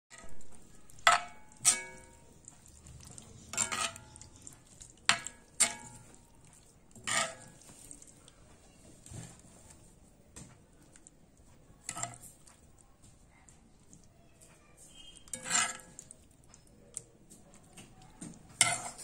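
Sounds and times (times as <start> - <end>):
metal spoon scraping a pan: 0.1 - 8.2, 11.8 - 12.5, 14.8 - 16.7, 18.5 - 19.0.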